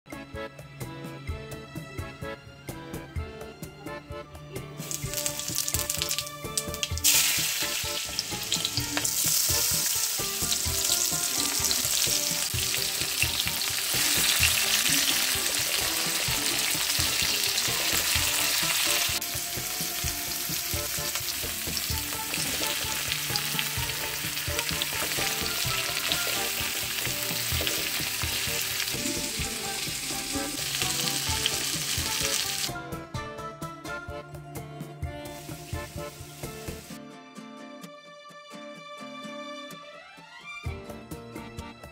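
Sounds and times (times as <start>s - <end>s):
vegetables sizzling in hot oil: 4.8s - 32.7s, 35.4s - 37.0s.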